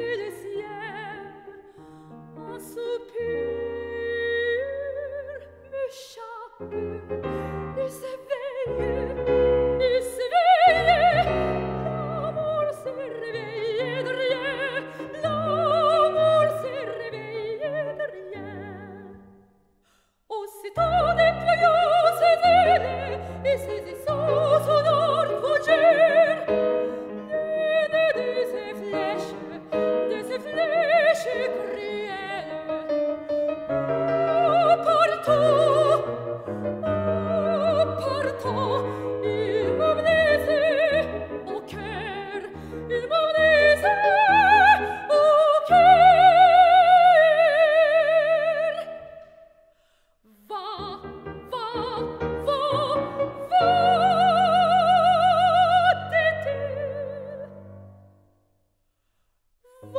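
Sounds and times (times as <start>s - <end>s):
operatic singing with vibrato: 0.0s - 19.3s, 20.3s - 49.4s, 50.3s - 57.6s
piano accompaniment: 6.6s - 19.2s, 20.8s - 48.4s, 50.6s - 58.0s.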